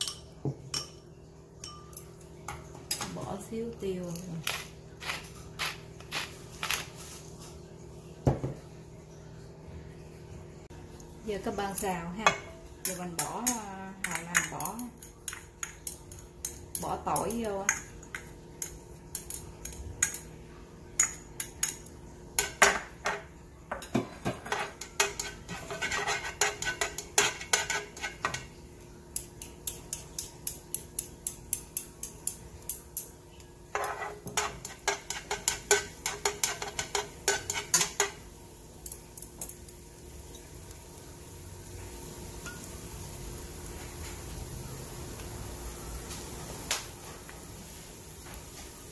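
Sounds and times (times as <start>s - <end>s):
chopsticks tapping frying pan: 11.8s - 20.3s, 21.0s - 33.1s, 33.7s - 40.4s.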